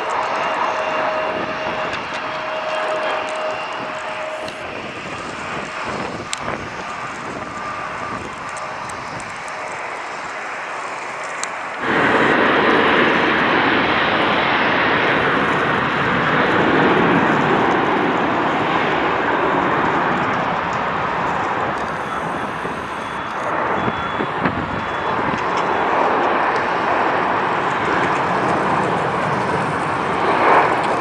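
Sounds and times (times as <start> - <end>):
jet airliner engine noise: 0.0 - 31.0.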